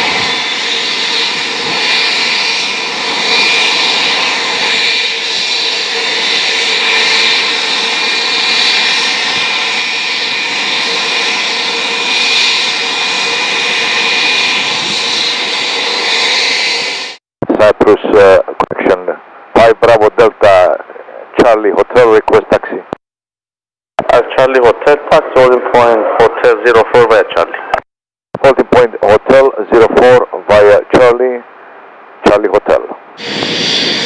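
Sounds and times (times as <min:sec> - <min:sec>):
jet engines idling: 0:00.0 - 0:17.2.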